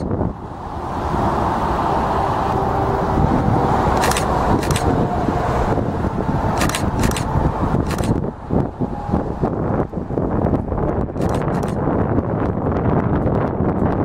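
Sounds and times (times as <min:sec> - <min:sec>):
jet engines whine and rumble: 0:00.0 - 0:14.0
short clicks: 0:04.0 - 0:04.9, 0:06.6 - 0:08.2, 0:11.2 - 0:11.8.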